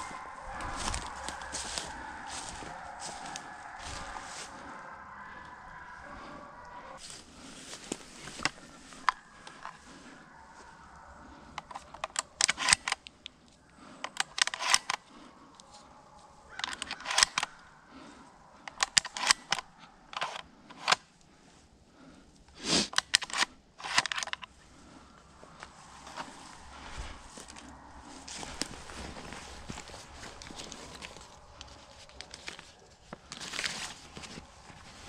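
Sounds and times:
clothing rustling: 25.5s - 35.0s.

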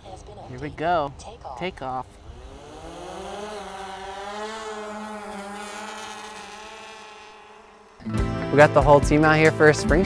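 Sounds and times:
drone propeller motors whining: 2.0s - 8.2s.

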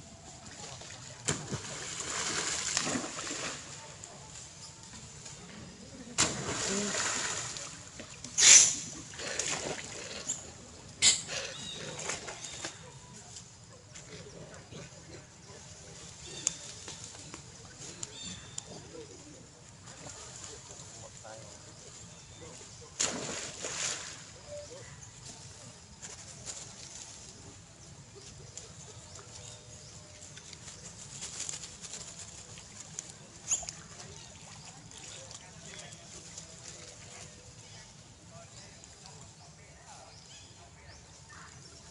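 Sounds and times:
monkeys splashing in water: 0.4s - 4.1s, 6.1s - 10.4s, 22.9s - 24.6s.

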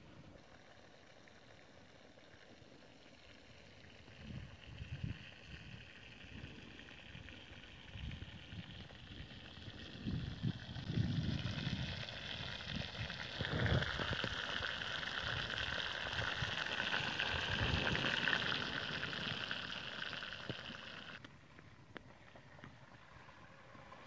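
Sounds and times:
chicken sizzling in hot oil: 2.2s - 21.2s.

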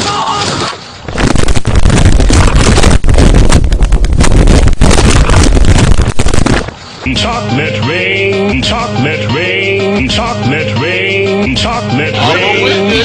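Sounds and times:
wooden structure collapsing: 0.0s - 6.8s.

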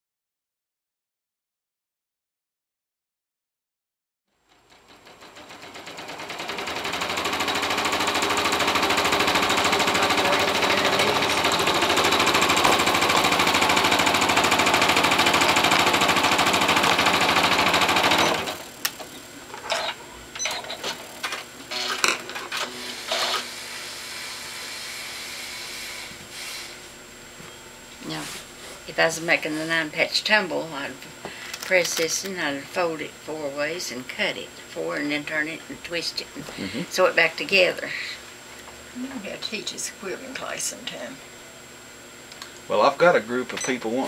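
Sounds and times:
sewing machine stitching: 4.5s - 18.7s, 19.7s - 23.5s.

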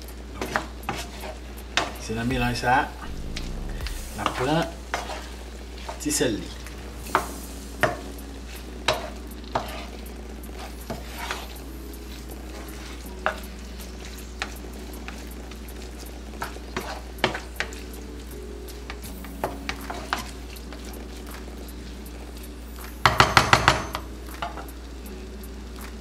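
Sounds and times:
food sizzling in a pan: 0.0s - 26.0s
wooden spatula scraping pan: 4.2s - 6.0s, 8.9s - 10.0s, 10.6s - 11.6s, 16.7s - 17.5s
spatula knocking against pan: 23.0s - 24.6s.

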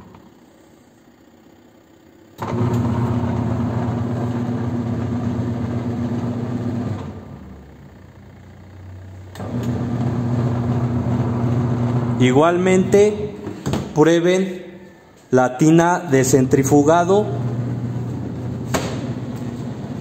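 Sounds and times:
washing machine motor humming: 2.3s - 13.7s, 16.1s - 20.0s.

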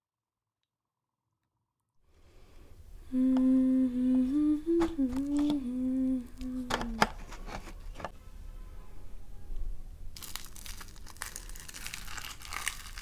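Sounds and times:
woman humming: 3.0s - 7.3s
flatbread crackling: 10.2s - 13.0s.

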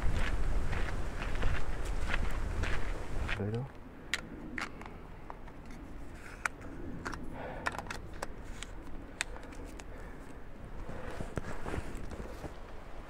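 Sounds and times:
footsteps on dry leaves: 0.0s - 3.4s.

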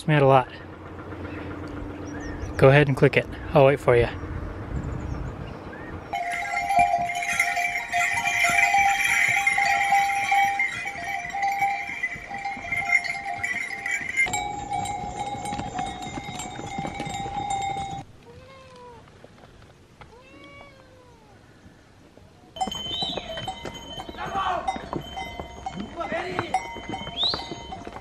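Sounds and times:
harness bells jingling: 6.1s - 18.1s, 22.6s - 28.0s
faint cat meows: 18.2s - 19.0s, 20.1s - 21.4s.

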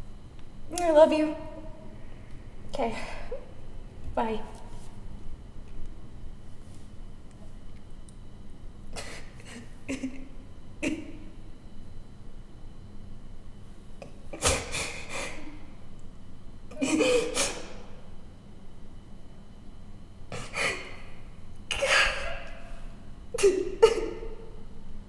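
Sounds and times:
woman sobbing: 9.0s - 11.2s, 16.7s - 17.7s, 23.4s - 24.3s.

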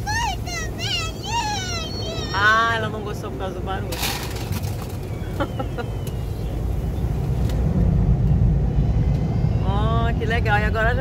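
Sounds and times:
water jets spraying on car: 0.0s - 5.9s
low rumble of wash machinery: 0.0s - 11.0s.

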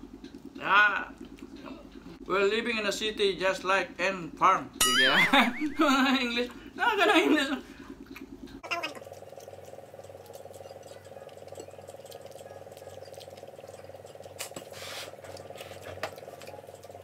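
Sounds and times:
faint clicks and rustle of eating: 0.0s - 2.3s, 7.6s - 17.0s
steady low hum: 0.0s - 17.0s.

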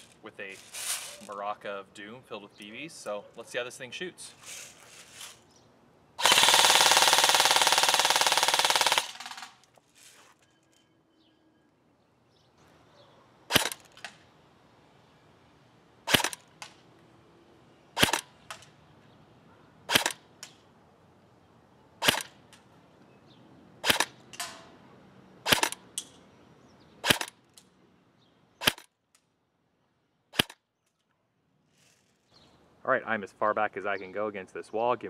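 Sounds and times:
airsoft rifle single shots: 13.5s - 14.2s, 16.1s - 16.5s, 18.0s - 18.3s, 19.9s - 20.2s, 22.0s - 22.3s, 23.8s - 24.7s, 25.4s - 25.8s, 27.0s - 27.4s, 28.6s - 28.9s, 30.3s - 30.6s.

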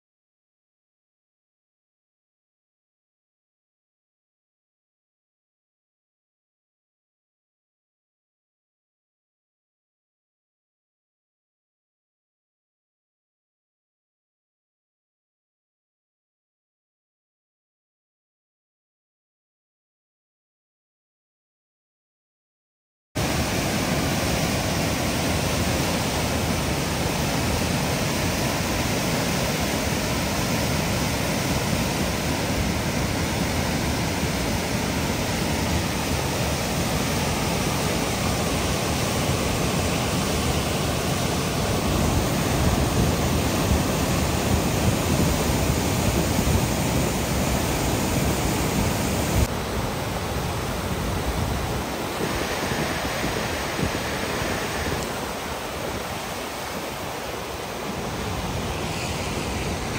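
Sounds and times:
floodwater roaring: 23.2s - 59.9s.

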